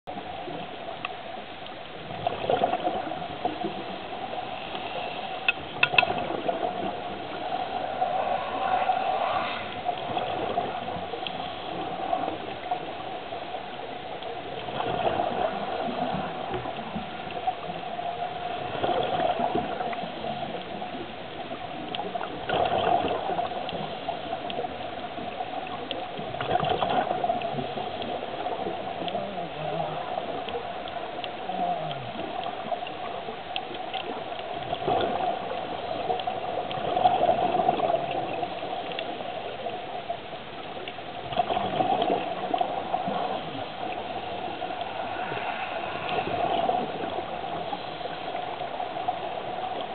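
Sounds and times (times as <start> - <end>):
steady hum: 0.2 - 13.5, 40.4 - 49.9
bubbles gurgling underwater: 2.0 - 4.5, 5.5 - 8.4, 9.8 - 13.7, 14.3 - 49.9.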